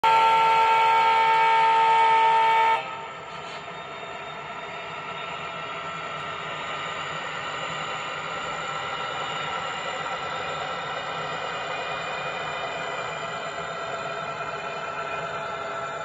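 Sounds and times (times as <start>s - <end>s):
model train horn chord: 0.0s - 3.1s
model train running: 0.0s - 16.0s.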